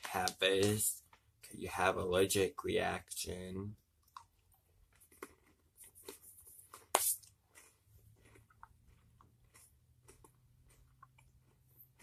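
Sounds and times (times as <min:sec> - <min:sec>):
person chewing crunchy snack: 0:04.0 - 0:12.0.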